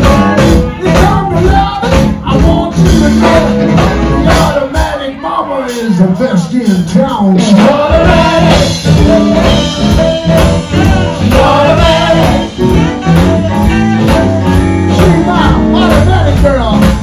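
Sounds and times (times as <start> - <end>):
live band playing: 0.0 - 17.0
man singing lead: 0.0 - 17.0
women singing backing vocals: 7.6 - 13.4.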